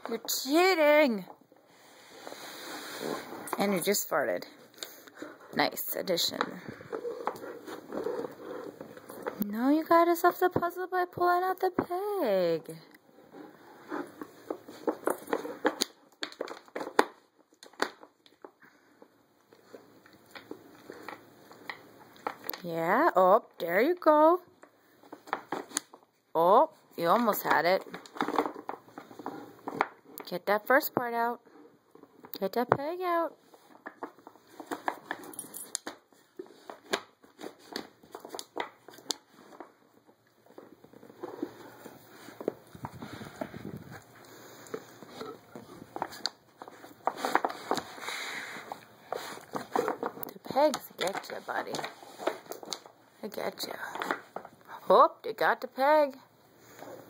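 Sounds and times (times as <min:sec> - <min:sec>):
toy scraping and rustling: 0:01.8 - 0:09.5, 0:40.4 - 0:53.0.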